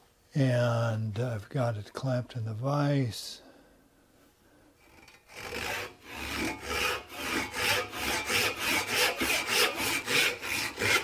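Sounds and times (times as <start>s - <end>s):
hand saw rasping through wood: 4.8s - 11.0s.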